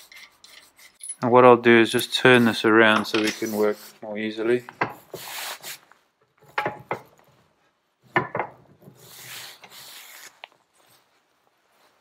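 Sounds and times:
metal scraping rub: 0.0 - 1.1.

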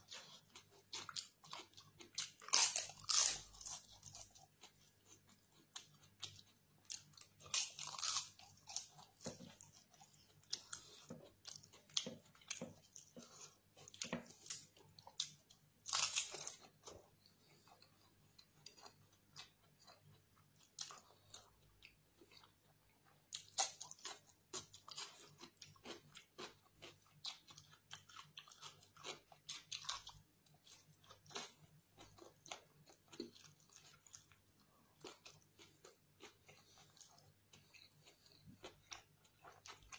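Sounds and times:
quiet chewing: 0.0 - 39.9
crunching crisp papadam: 0.1 - 4.8, 6.9 - 9.7, 10.5 - 17.0.

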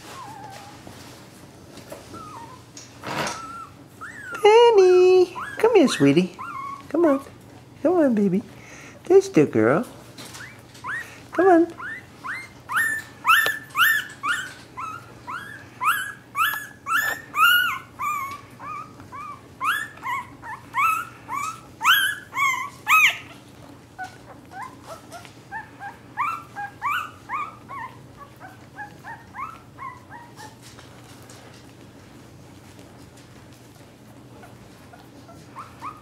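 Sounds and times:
puppy crying squeaky calls: 2.1 - 2.6, 3.3 - 4.4, 5.4 - 6.9, 10.3 - 11.1, 11.8 - 23.4, 24.0 - 30.6.

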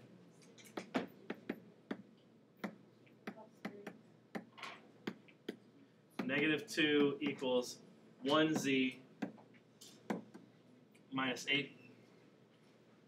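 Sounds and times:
stylus tapping on tablet: 0.8 - 5.6, 8.6 - 10.5.

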